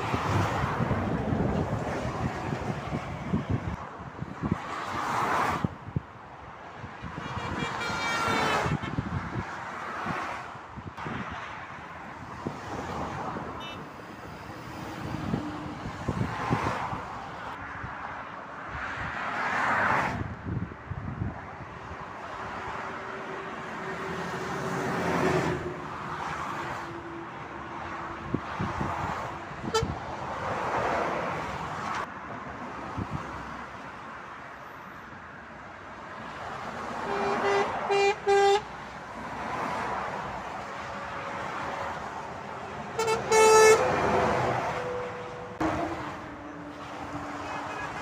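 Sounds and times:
traffic passing: 0:00.0 - 0:48.0
vehicle horn toots: 0:07.1 - 0:09.1, 0:13.6 - 0:13.9, 0:29.6 - 0:30.0, 0:37.1 - 0:38.7, 0:43.0 - 0:44.1, 0:47.4 - 0:48.0.

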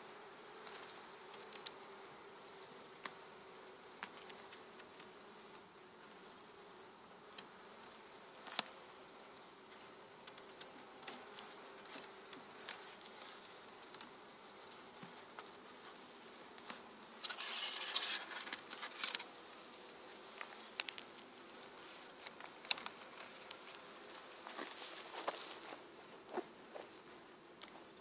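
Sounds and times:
bees buzzing: 0:00.0 - 0:28.0
scraping rustle: 0:16.6 - 0:19.4, 0:20.1 - 0:26.9.

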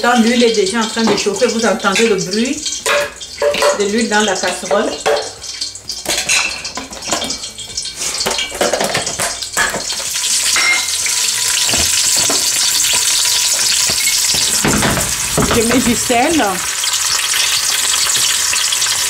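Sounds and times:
onions sizzling in hot oil: 0:00.0 - 0:19.0
plastic blender jug clattering: 0:13.9 - 0:16.1.

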